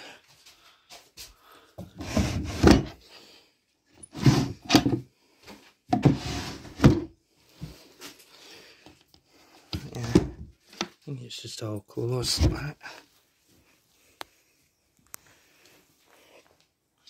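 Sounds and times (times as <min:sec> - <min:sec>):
wooden drawer scraping: 0:02.0 - 0:03.0, 0:04.0 - 0:05.0, 0:05.9 - 0:07.1, 0:09.8 - 0:10.5
drawer knocking: 0:05.9 - 0:07.1.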